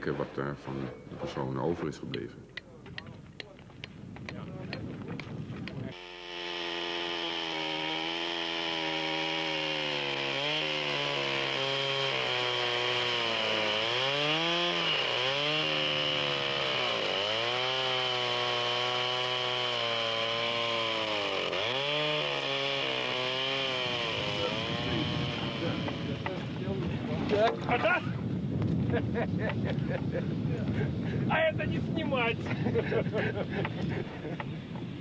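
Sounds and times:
chainsaw cutting: 5.6s - 27.7s, 32.4s - 35.0s.

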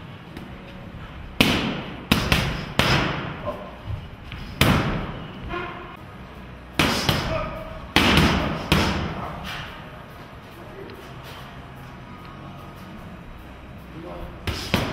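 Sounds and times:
punches hitting focus mitts: 1.4s - 3.4s, 4.3s - 5.1s, 6.8s - 9.2s.

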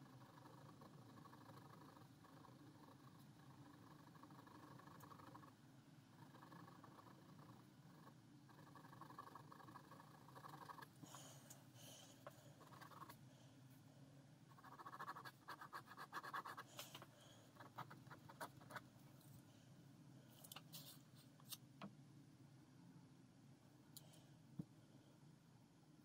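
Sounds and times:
ballpoint pen scratching on paper: 12.6s - 13.2s, 14.5s - 17.0s, 17.6s - 18.9s.

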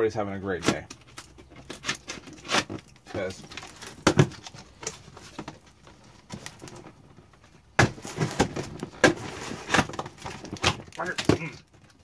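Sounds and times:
cardboard box scraping: 7.9s - 10.8s.

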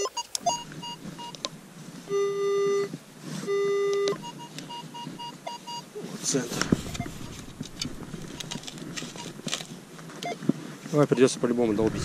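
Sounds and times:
metal detector rapid high beeps: 0.0s - 1.4s, 2.1s - 2.9s, 3.5s - 5.9s, 6.7s - 7.5s, 8.2s - 9.4s
metal detector low tones: 0.0s - 10.4s.

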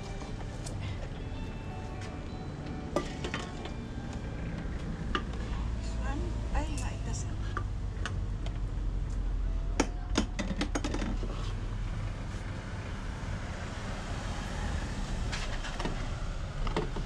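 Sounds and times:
drink containers clattering: 10.2s - 11.4s.

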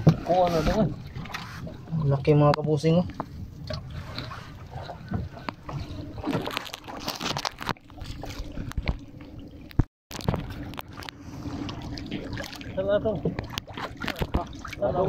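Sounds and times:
water sloshing around a boat: 0.0s - 15.0s.

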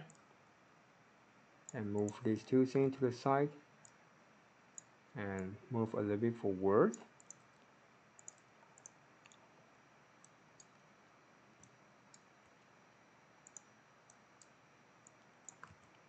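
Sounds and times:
computer mouse clicks: 0.0s - 0.2s, 6.9s - 7.5s, 8.2s - 9.4s, 10.2s - 10.8s, 11.6s - 12.6s, 13.4s - 16.0s.

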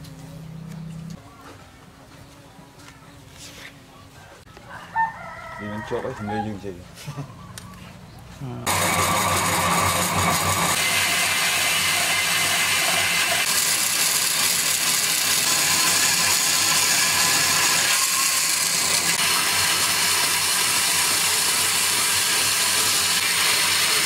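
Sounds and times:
band saw cutting wood: 8.6s - 24.0s.

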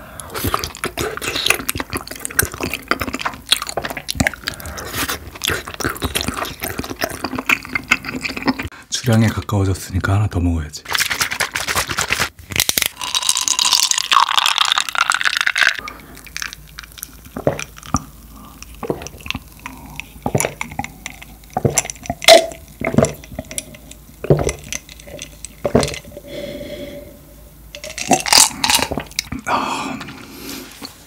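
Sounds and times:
person sipping and gulping: 0.0s - 8.8s, 12.6s - 31.0s.

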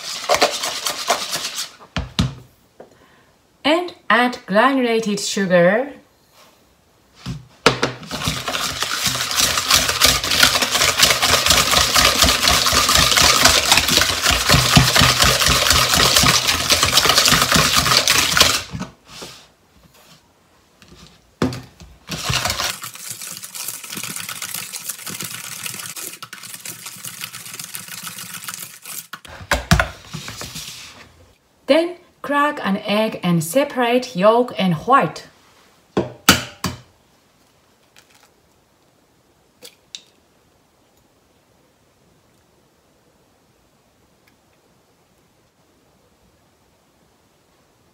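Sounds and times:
whisk beating in plastic bowl: 0.0s - 1.7s, 8.0s - 18.9s, 22.1s - 29.2s
knock: 7.6s - 8.0s.

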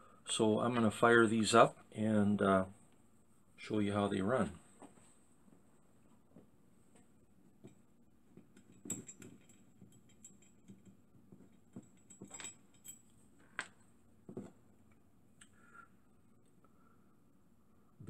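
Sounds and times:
faint metallic clicks and clinks: 7.5s - 15.6s.

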